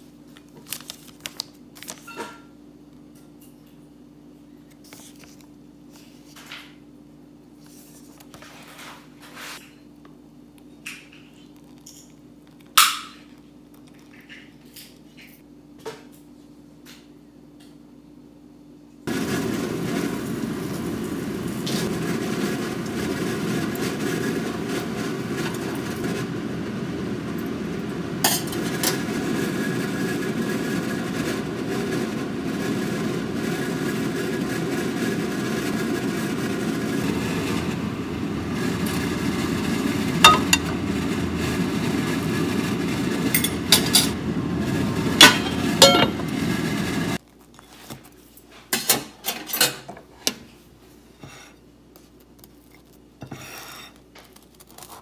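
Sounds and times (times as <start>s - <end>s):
kitchen fan whirring: 0.0s - 55.0s
plate and utensils clinking: 40.2s - 40.7s, 43.4s - 44.2s, 45.2s - 46.4s.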